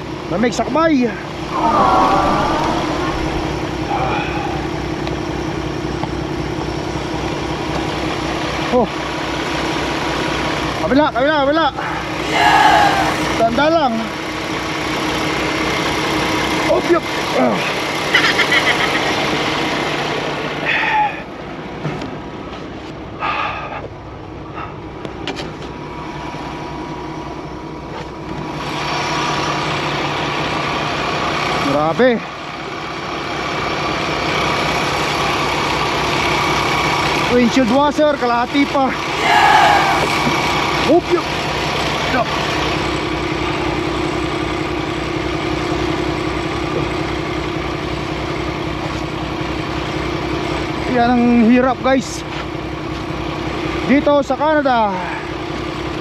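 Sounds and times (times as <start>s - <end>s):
diesel engine idling: 1.2s - 21.5s, 32.3s - 51.4s
rough scraping noise: 1.5s - 4.5s.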